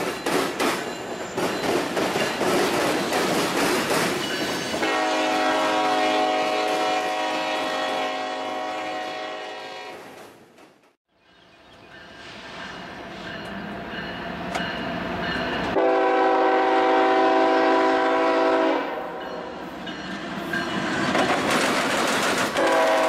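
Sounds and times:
diesel locomotives approaching: 0.0 - 23.0
train air horn: 4.8 - 10.2, 15.7 - 19.6, 22.6 - 23.0
wheels clattering over track: 21.0 - 23.0.

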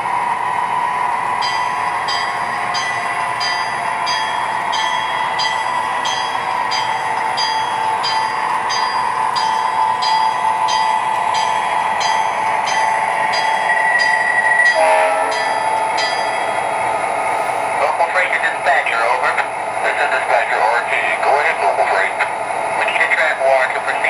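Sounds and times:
diesel engine drone: 0.0 - 24.0
bell ringing: 1.4 - 16.8.

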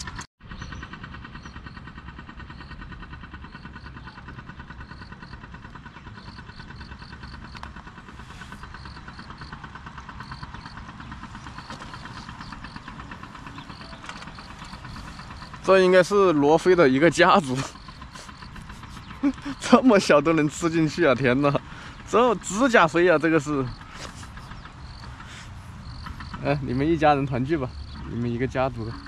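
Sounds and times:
distant traffic rumble: 0.0 - 29.0
insects chirping: 6.2 - 29.0.

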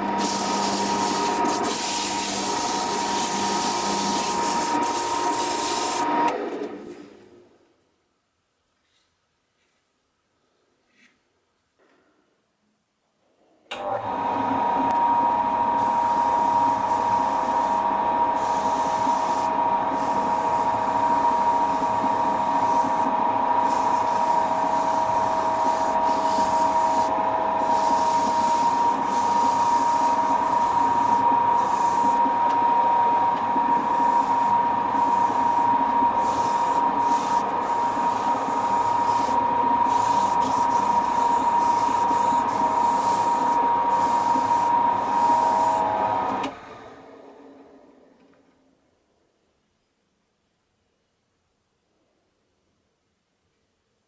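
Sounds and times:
wood lathe whining: 0.0 - 6.8, 13.8 - 47.1
pad rubbing on spinning wood: 0.1 - 6.1, 21.8 - 32.4, 33.3 - 45.9.

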